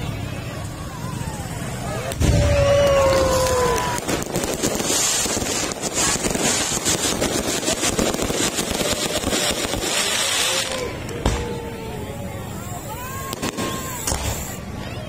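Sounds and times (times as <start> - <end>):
fireworks popping and crackling: 0.0 - 14.8.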